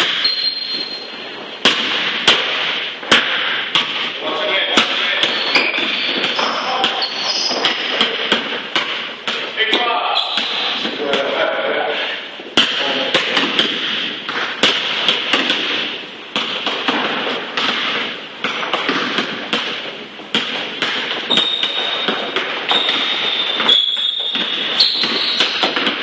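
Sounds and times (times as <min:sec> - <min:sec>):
sneaker squeaks on wood: 0:00.0 - 0:01.2, 0:05.3 - 0:07.8, 0:10.1 - 0:10.8, 0:21.2 - 0:25.8
basketball bouncing on wood floor: 0:04.8 - 0:11.3, 0:12.6 - 0:26.0.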